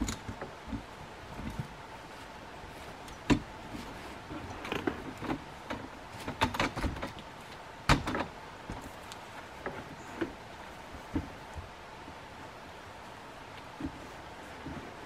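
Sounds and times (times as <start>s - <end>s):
metal ladder clunking and rattling: 3.2s - 7.2s.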